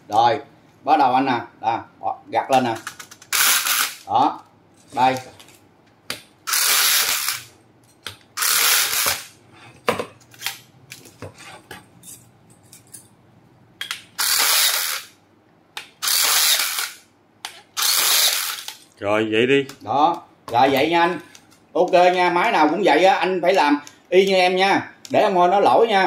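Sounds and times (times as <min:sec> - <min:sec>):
rebar tying tool motor: 0:06.5 - 0:07.5, 0:08.4 - 0:09.3, 0:14.2 - 0:15.1, 0:16.0 - 0:17.0, 0:17.8 - 0:18.8.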